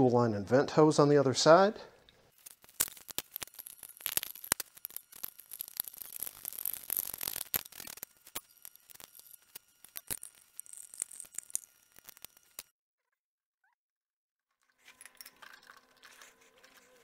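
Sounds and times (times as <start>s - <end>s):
hands handling wiring: 2.4s - 12.7s.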